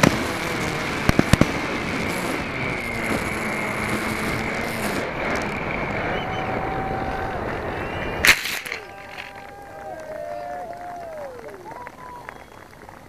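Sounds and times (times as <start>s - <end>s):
high motor whine: 0.0s - 9.6s
fireworks cracks: 0.0s - 13.0s.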